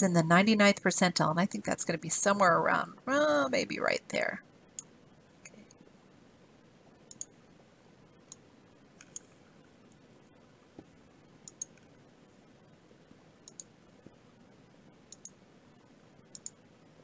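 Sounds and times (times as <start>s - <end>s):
faint background hiss: 0.0s - 17.0s
computer mouse clicks: 7.1s - 7.4s, 9.0s - 10.0s, 11.4s - 11.9s, 13.4s - 13.7s, 15.1s - 15.4s, 16.3s - 16.6s.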